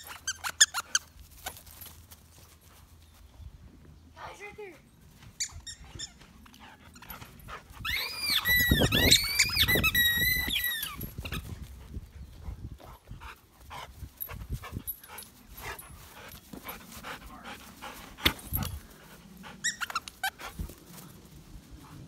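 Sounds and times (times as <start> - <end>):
squeaky dog toy squeaking: 5.4 - 6.2, 7.8 - 11.4.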